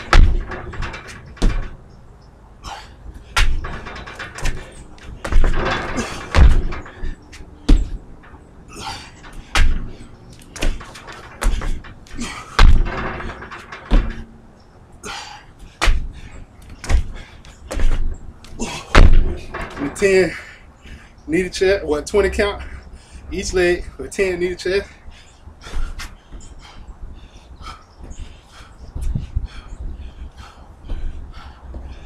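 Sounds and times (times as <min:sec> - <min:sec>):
thuds on wooden deck: 0:00.0 - 0:01.8, 0:02.7 - 0:08.1, 0:08.8 - 0:10.0, 0:10.6 - 0:14.2, 0:15.0 - 0:19.8, 0:29.0 - 0:32.0.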